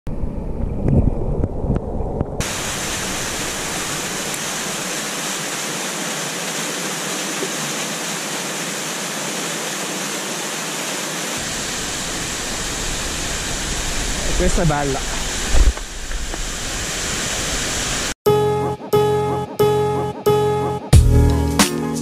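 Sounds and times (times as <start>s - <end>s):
stream rushing over rocks: 2.4s - 18.2s
muffled underwater rush: 11.4s - 18.2s
low knocks underwater: 15.5s - 16.4s.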